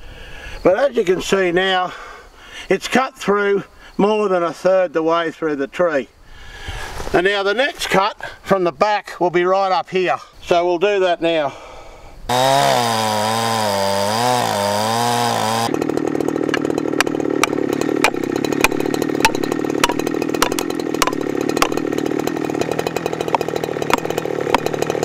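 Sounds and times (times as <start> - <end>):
chainsaw cutting wood: 12.3 - 25.0
hammer striking felling wedge: 12.3 - 25.0.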